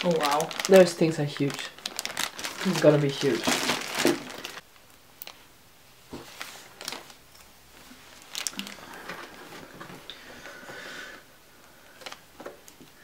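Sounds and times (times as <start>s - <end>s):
plastic packaging rustling: 0.0s - 5.5s, 6.1s - 10.1s.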